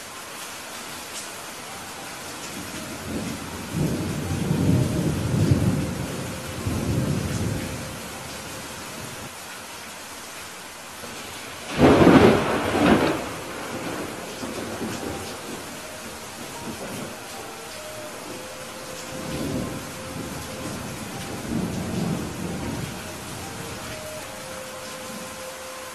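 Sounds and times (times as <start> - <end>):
steady rain hiss: 0.0 - 25.9
thunder rumbling: 2.6 - 9.3, 11.0 - 25.4
sharp thunderclap: 11.7 - 15.6.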